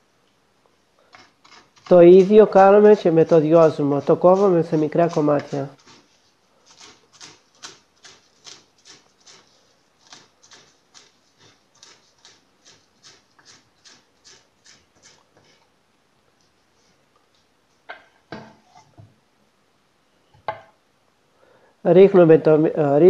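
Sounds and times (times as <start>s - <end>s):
knife chopping on wooden board: 6.7s - 15.6s.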